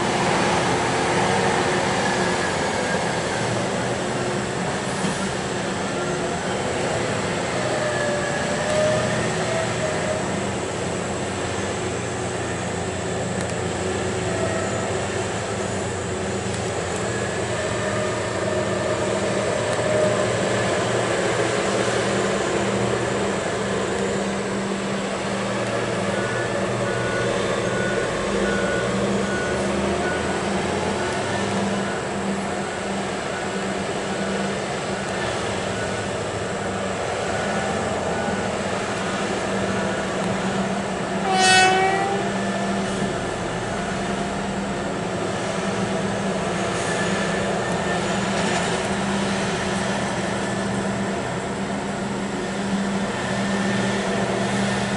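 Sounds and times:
diesel engines humming: 0.0s - 54.9s
reversing alarm beeping: 23.9s - 45.0s.

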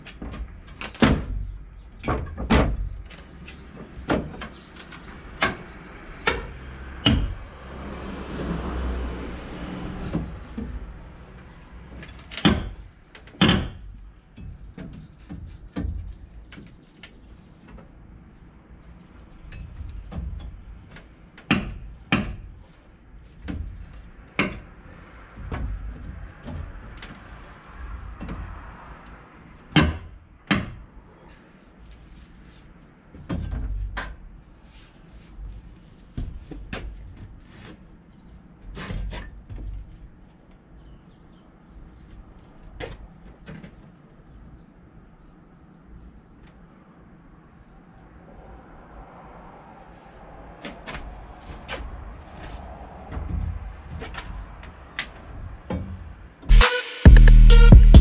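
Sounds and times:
scraping on wood: 34.5s - 40.0s.

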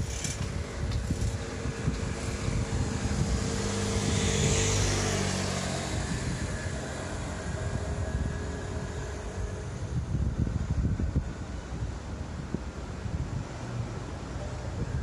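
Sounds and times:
electric train approaching: 0.0s - 11.7s.

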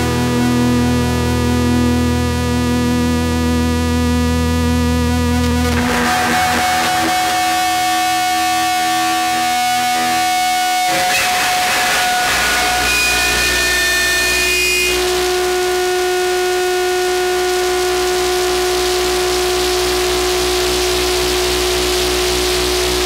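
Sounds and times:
held chords: 5.2s - 15.4s
low drone: 5.4s - 15.0s.

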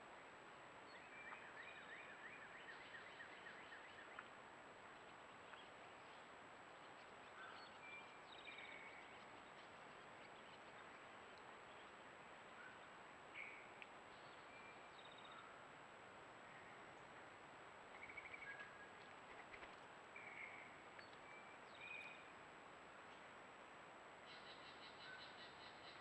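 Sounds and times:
distant birdsong: 5.0s - 15.6s, 24.2s - 26.0s.

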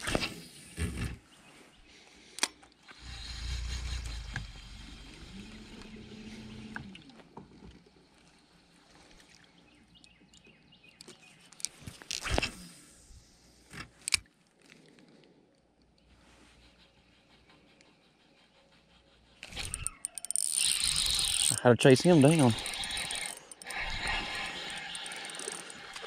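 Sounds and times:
electric motor humming: 3.0s - 7.1s, 19.6s - 26.0s
sharp clicks: 19.4s - 26.0s.

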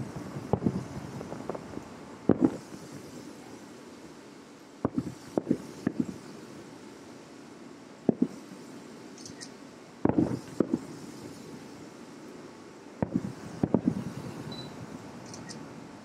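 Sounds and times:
distant fireworks booming: 0.0s - 3.6s, 4.8s - 6.5s, 8.0s - 8.6s, 10.0s - 11.4s, 13.0s - 14.5s.

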